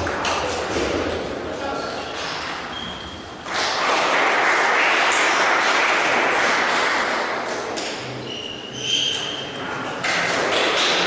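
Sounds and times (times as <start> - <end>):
spectators clapping: 3.5 - 7.4.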